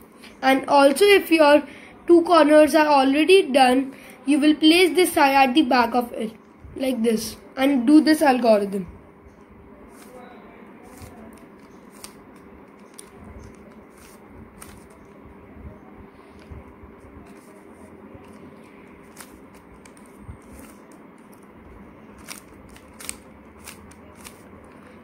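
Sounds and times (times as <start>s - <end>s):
puzzle cube layers clicking: 22.2s - 24.9s.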